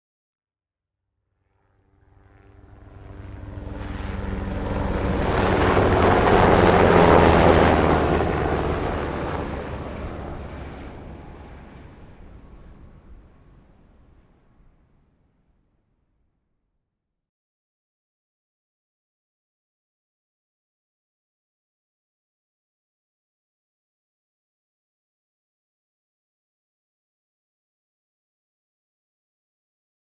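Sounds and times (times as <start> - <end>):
helicopter passing by: 1.4 - 14.6.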